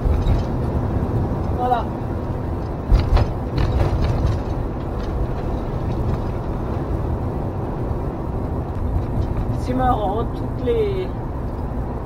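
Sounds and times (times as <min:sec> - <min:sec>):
knocks and rattles: 0:00.0 - 0:07.2, 0:08.5 - 0:09.8
engine and road rumble: 0:00.0 - 0:12.0.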